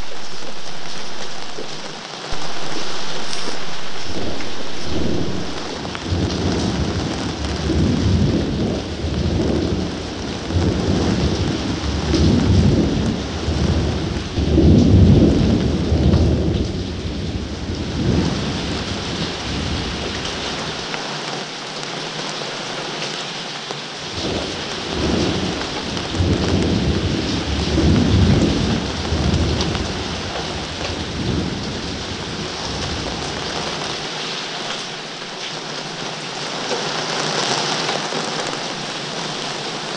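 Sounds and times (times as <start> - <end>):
thunder rumbling: 0.0 - 20.8, 24.1 - 34.1
steady rain: 0.0 - 39.9.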